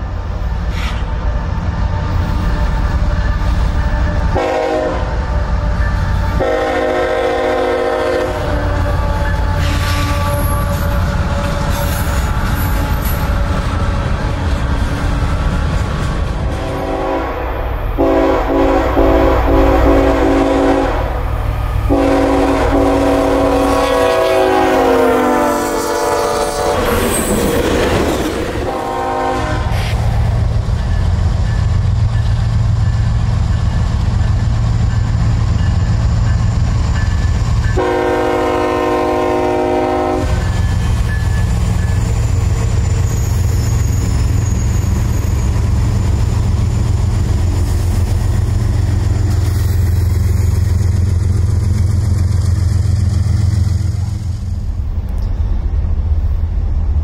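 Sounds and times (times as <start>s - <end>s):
locomotive engine rumbling: 0.0s - 57.0s
locomotive horn: 0.7s - 14.5s, 16.4s - 27.2s, 28.6s - 29.9s, 37.8s - 40.6s.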